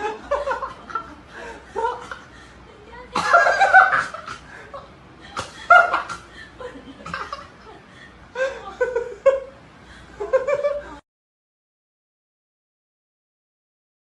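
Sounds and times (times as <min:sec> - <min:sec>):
person giggling and chuckling: 0:03.2 - 0:11.0.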